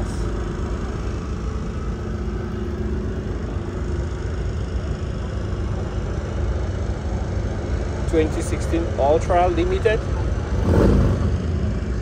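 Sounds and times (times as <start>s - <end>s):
motorcycle engines rumbling: 0.0s - 12.0s.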